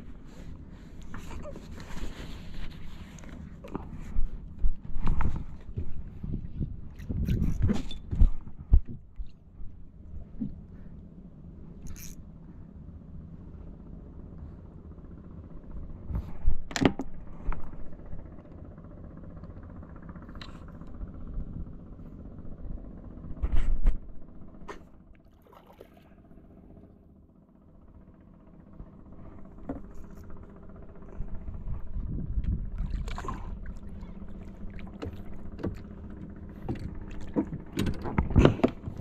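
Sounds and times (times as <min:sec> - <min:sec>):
boat motor hum: 0:00.0 - 0:39.0
sharp knocks from boat: 0:34.7 - 0:39.0.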